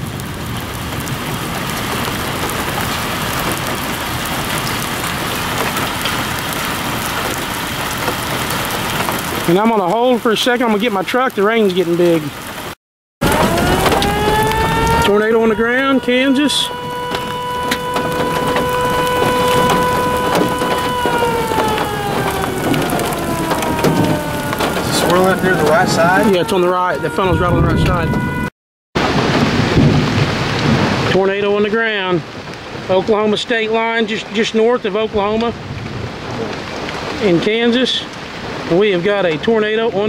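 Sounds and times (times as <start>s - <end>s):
raindrops ticking: 0.0s - 27.3s, 29.0s - 40.0s
heavy rain falling: 0.0s - 40.0s
warning siren tone: 13.2s - 28.5s.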